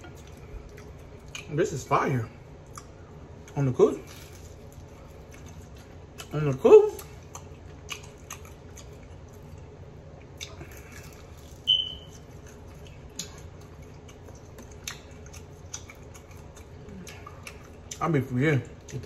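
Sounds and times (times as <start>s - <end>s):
person chewing food: 0.0s - 1.6s, 2.4s - 19.0s
short high squeak: 11.7s - 12.1s
wet mouth clicks and smacks: 14.1s - 18.0s.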